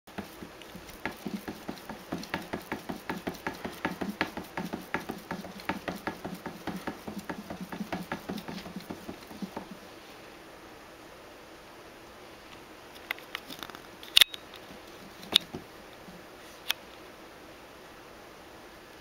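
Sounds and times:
cat paws tapping plastic container: 0:00.1 - 0:09.8.

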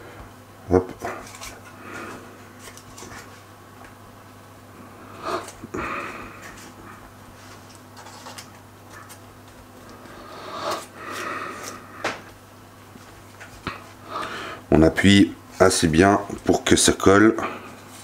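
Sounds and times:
steady low hum: 0:00.0 - 0:18.0
hands handling pastry rustles: 0:01.0 - 0:04.0, 0:05.3 - 0:14.0.

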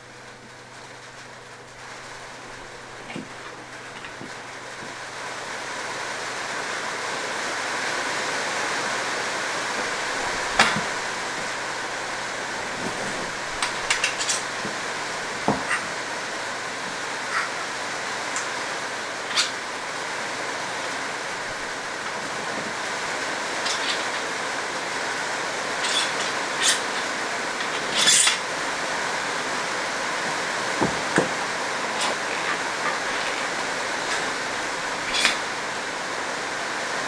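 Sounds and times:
steady hiss: 0:00.0 - 0:37.0
bike wheel parts clicking: 0:25.8 - 0:28.4.

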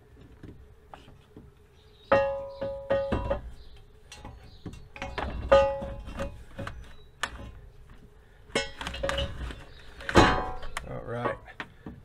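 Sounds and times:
metal clanks and clinks: 0:02.1 - 0:06.4, 0:08.5 - 0:11.5.

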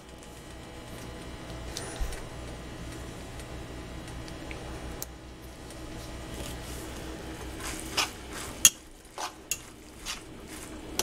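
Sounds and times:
cutlery clinking against a bowl: 0:08.6 - 0:10.2.

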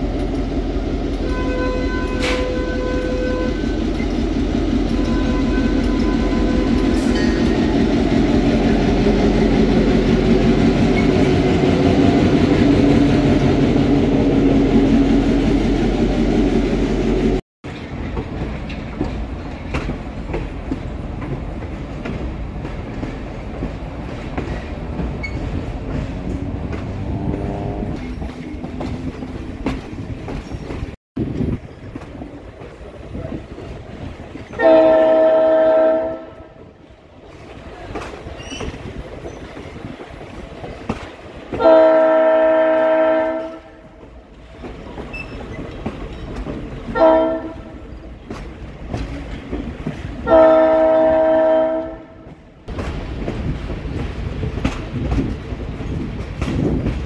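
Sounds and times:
train rumble and clickety-clack: 0:00.0 - 0:57.0
locomotive horn blasts: 0:01.2 - 0:03.8, 0:04.9 - 0:07.1, 0:34.6 - 0:36.6, 0:41.6 - 0:43.9, 0:47.0 - 0:47.8, 0:50.2 - 0:52.3.

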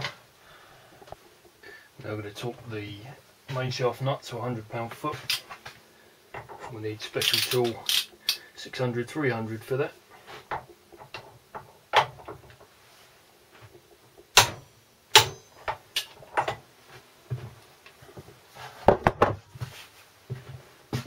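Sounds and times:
metal socket tool clinking: 0:07.2 - 0:08.4.

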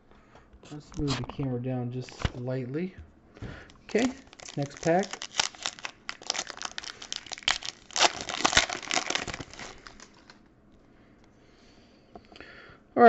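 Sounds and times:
foil wrapper crinkling: 0:03.8 - 0:10.4.

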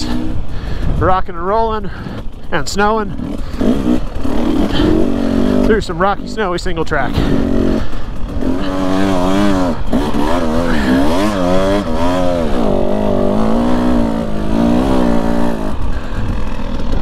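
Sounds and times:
dirt bike engine revving: 0:00.0 - 0:17.0.

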